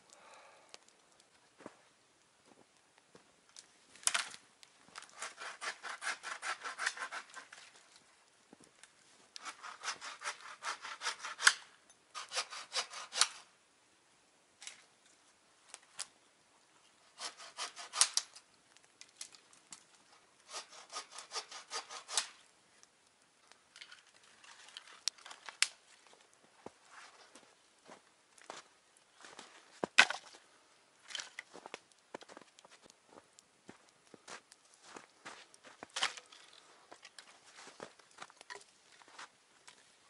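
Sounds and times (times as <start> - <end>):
hand saw cutting wood: 5.0 - 7.7, 9.4 - 13.5, 17.1 - 18.3, 20.4 - 22.4.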